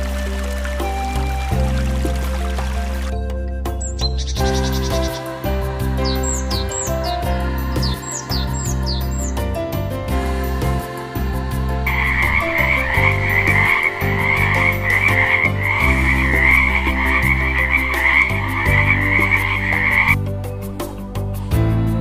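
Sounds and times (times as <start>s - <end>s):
soft background music: 0.0s - 22.0s
tree frog rasping trill: 11.9s - 20.2s.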